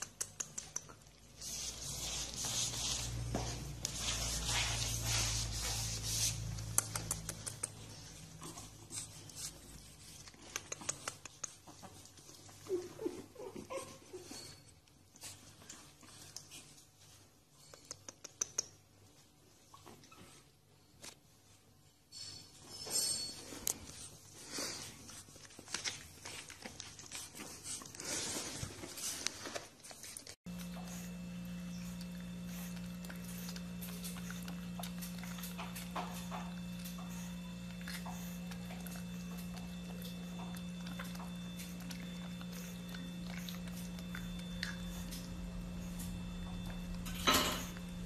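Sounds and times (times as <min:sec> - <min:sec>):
claws clicking on tile floor: 0:00.0 - 0:01.2, 0:06.5 - 0:07.9
puppy crunching carrot: 0:00.0 - 0:12.1, 0:23.7 - 0:48.0
puppies whimpering: 0:12.5 - 0:14.6
steady low hum: 0:30.5 - 0:48.0.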